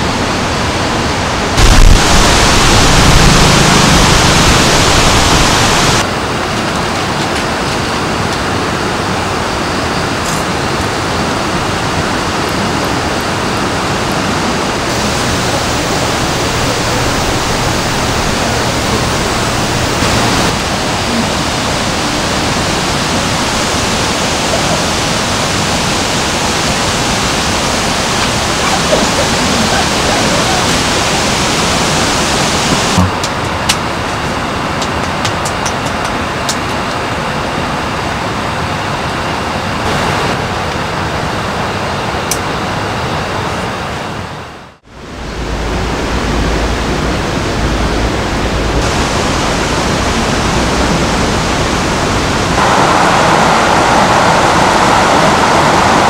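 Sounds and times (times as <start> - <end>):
stream flowing over rocks: 11.0 - 33.2, 48.5 - 56.0.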